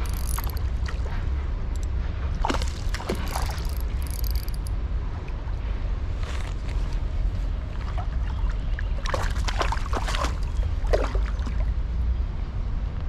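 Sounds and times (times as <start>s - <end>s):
steady low rumble: 0.0s - 13.0s
fish splashing at water surface: 2.4s - 4.7s, 9.0s - 11.6s.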